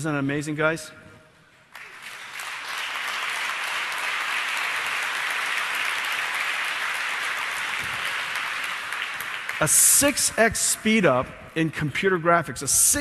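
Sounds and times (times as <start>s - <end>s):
audience applause: 1.7s - 10.0s.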